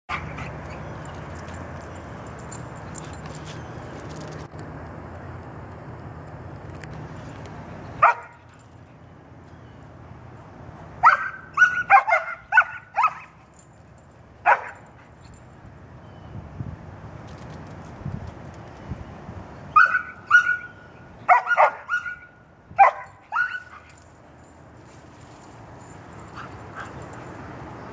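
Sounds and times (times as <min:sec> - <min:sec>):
dogs barking: 0:08.0 - 0:08.5, 0:11.0 - 0:13.4, 0:14.4 - 0:15.1, 0:19.8 - 0:24.0.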